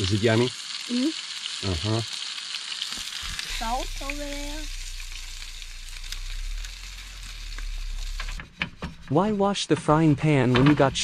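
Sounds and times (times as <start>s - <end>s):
food sizzling in frying pan: 0.0s - 9.0s
low steady hum: 3.0s - 11.0s.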